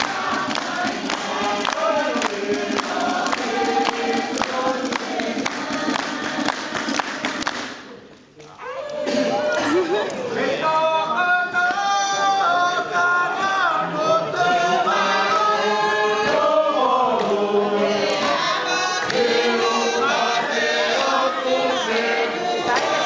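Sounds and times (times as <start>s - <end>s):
group singing long held notes: 0.0s - 8.0s, 9.0s - 23.0s.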